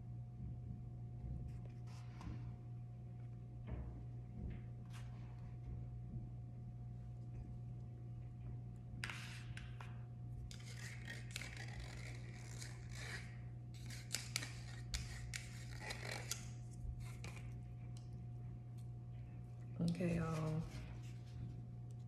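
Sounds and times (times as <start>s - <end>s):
plastic fork scraping a cup: 10.5s - 17.6s.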